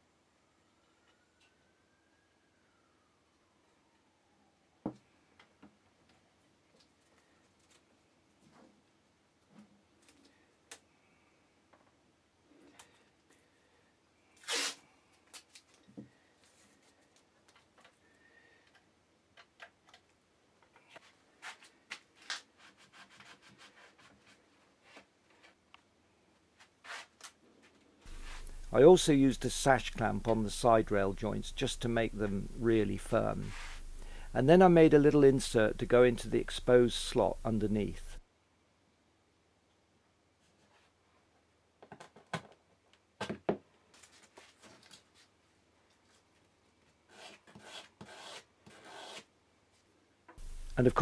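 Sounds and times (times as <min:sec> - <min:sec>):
wood rubbed on sandpaper: 0:28.1 - 0:34.1.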